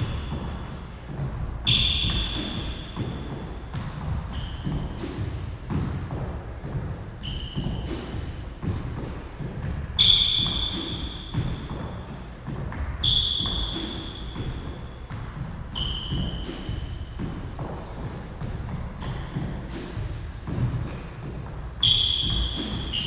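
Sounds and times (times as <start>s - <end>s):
shoes squeaking on hardwood floor: 0.1s - 5.4s, 7.2s - 8.3s, 10.0s - 12.2s, 13.0s - 15.1s, 15.7s - 17.0s, 21.8s - 23.0s.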